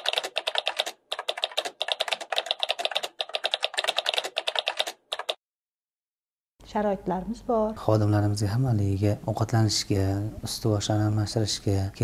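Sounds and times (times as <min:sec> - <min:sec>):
keyboard typing clicks: 0:00.0 - 0:05.4.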